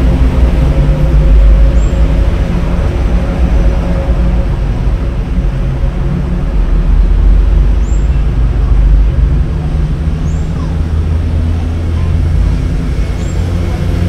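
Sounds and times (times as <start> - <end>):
engine hum: 0.0 - 14.0
traffic rumble: 0.0 - 14.0.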